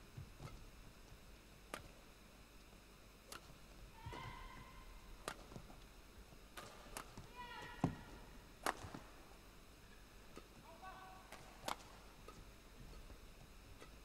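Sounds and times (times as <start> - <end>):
racket striking shuttlecock: 3.3 - 4.5, 5.2 - 5.7, 6.6 - 9.0, 11.3 - 13.1.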